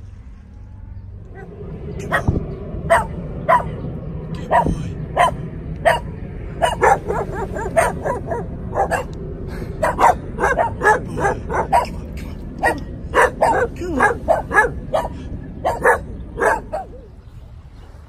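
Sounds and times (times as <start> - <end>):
dog barking: 1.4 - 3.8, 4.4 - 9.1, 9.8 - 17.0.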